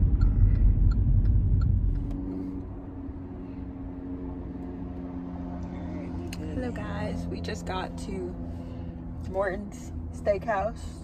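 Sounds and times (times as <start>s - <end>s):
turn signal ticking: 0.0s - 2.2s
car cabin road noise: 0.0s - 11.0s.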